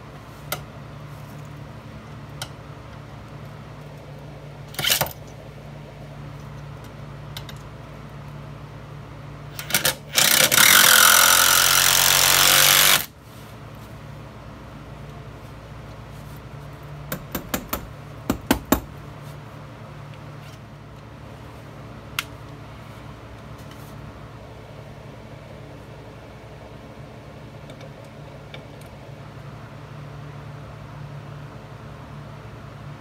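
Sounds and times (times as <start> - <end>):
knocking on wooden frame: 17.1 - 18.9.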